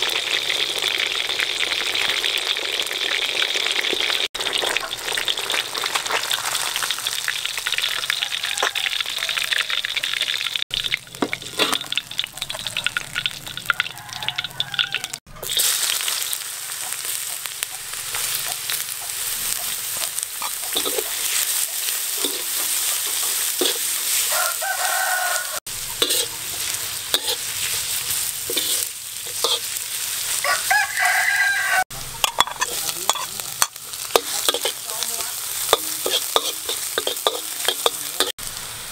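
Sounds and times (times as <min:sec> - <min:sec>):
metal spatula stir-frying: 0:00.0 - 0:38.9
oil sizzling in a wok: 0:00.0 - 0:38.9
rooster crowing: 0:07.8 - 0:10.0, 0:13.6 - 0:15.4, 0:24.1 - 0:25.7, 0:30.4 - 0:32.0.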